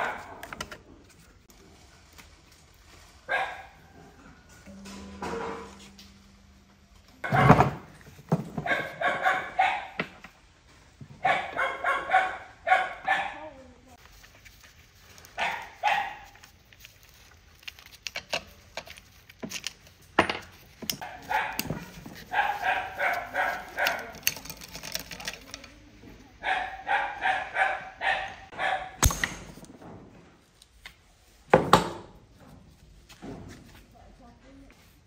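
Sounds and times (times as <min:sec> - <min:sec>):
dog barking: 0:00.0 - 0:00.4, 0:03.3 - 0:04.0, 0:08.6 - 0:10.0, 0:11.2 - 0:13.6, 0:15.4 - 0:16.4, 0:21.0 - 0:24.2, 0:26.4 - 0:29.0
metal knocks and clanks: 0:04.6 - 0:09.0.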